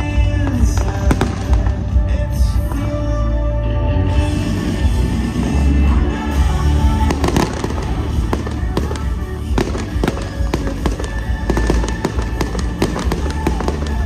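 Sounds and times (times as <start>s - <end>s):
music with heavy bass: 0.0s - 14.0s
firework bangs: 0.2s - 2.4s, 6.4s - 14.0s.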